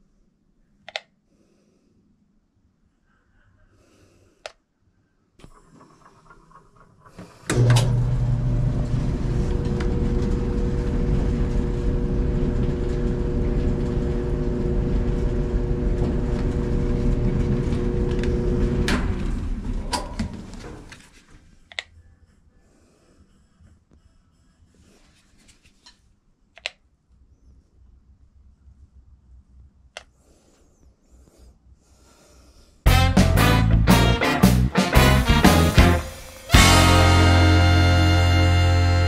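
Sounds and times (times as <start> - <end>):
clicks: 0.9 - 1.2, 25.8 - 26.9
clothes dryer running: 5.4 - 20.9, 32.9 - 39.0.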